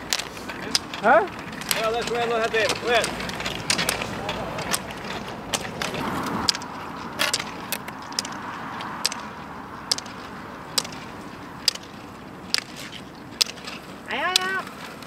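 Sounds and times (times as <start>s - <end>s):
roller ski wheels hissing: 0.0s - 9.4s
ski poles clicking on pavement: 0.0s - 15.0s.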